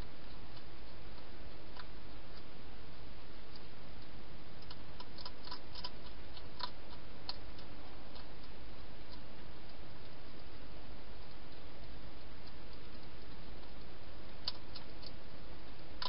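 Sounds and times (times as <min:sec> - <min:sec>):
steady hiss: 0:00.0 - 0:16.0
hedgehog crunching dry food: 0:03.5 - 0:10.6, 0:11.2 - 0:16.0.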